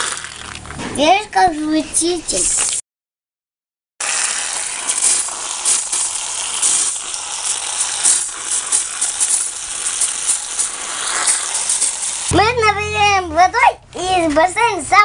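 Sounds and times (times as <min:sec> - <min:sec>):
hose water spattering on plastic: 0:04.0 - 0:12.3.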